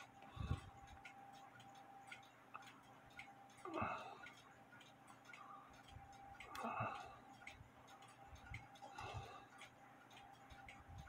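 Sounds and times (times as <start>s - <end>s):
clock ticking: 0.0s - 11.0s.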